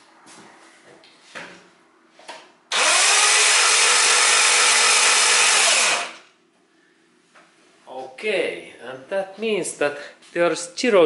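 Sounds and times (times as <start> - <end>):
starter motor cranking engine: 2.7 - 6.2.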